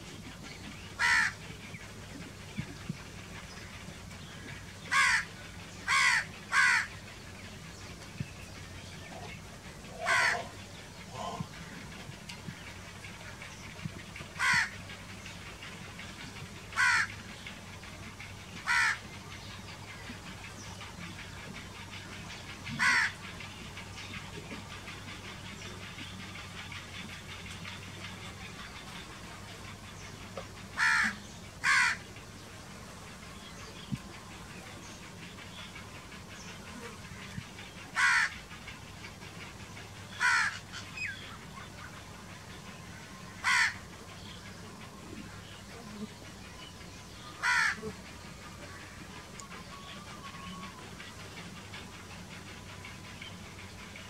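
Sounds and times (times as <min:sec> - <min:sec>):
crow cawing: 0:01.0 - 0:01.4, 0:04.9 - 0:05.3, 0:05.9 - 0:06.9, 0:10.0 - 0:10.6, 0:14.4 - 0:14.8, 0:16.8 - 0:17.1, 0:18.6 - 0:19.0, 0:22.8 - 0:23.2, 0:30.8 - 0:32.0, 0:38.0 - 0:38.3, 0:40.2 - 0:40.6, 0:43.4 - 0:43.8, 0:47.4 - 0:47.8.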